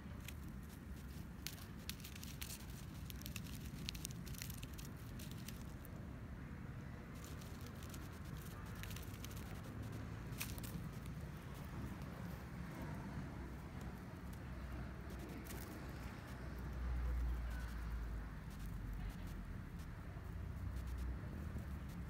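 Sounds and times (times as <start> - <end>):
dry grass crackling: 0.0 - 5.9, 7.1 - 12.4, 13.8 - 19.4
steady low rumble: 0.0 - 22.0.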